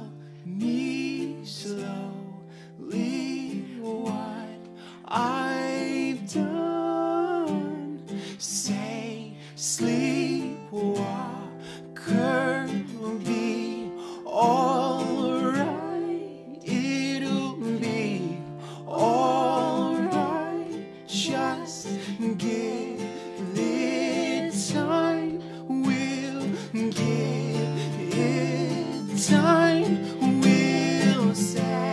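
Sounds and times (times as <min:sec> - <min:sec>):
acoustic guitar strummed: 0:00.0 - 0:31.9
man and woman singing in harmony: 0:00.0 - 0:31.9.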